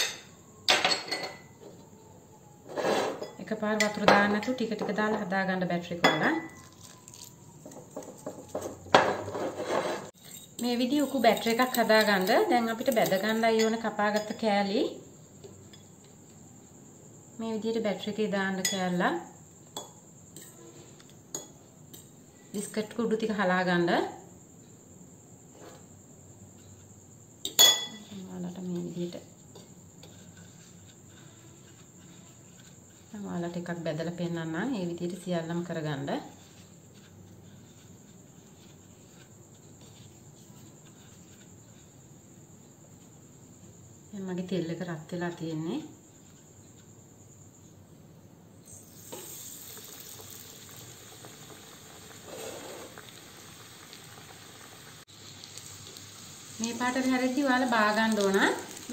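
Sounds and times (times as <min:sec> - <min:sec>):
spoon clinking glass bowl: 0:00.0 - 0:01.5, 0:10.2 - 0:14.4, 0:27.4 - 0:28.1
deep frying sizzle: 0:48.6 - 0:58.9
faint hiss of hot oil: 0:48.6 - 0:58.9.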